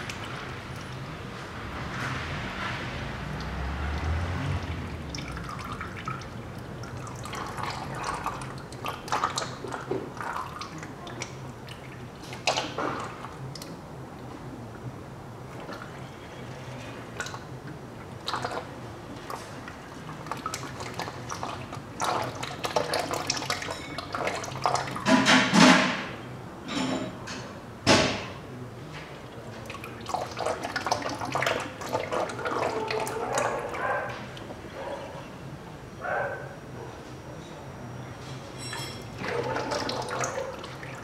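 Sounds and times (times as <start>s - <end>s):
fluid splashing into container: 18.1s - 26.0s, 29.5s - 33.7s.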